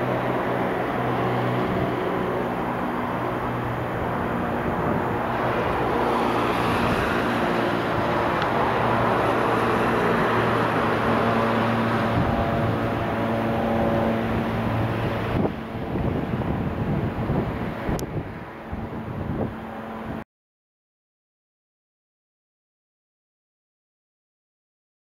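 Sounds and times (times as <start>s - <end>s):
low engine hum: 0.0s - 20.2s
road traffic noise: 0.0s - 20.2s.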